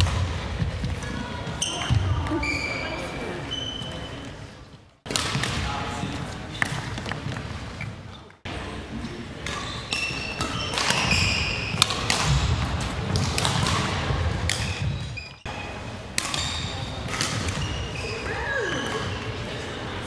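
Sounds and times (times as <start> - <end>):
shoes squeaking: 1.0 - 5.0, 9.5 - 12.9, 13.5 - 19.4
racket striking shuttlecock: 9.4 - 15.1, 16.1 - 17.9.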